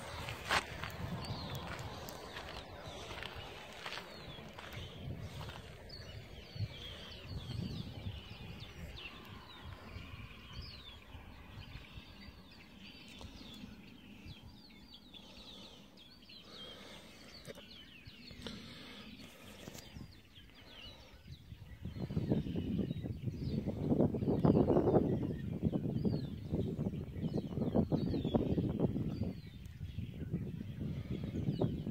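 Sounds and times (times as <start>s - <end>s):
low rumbling noise: 0.0s - 12.6s
small birds chirping: 0.0s - 31.9s.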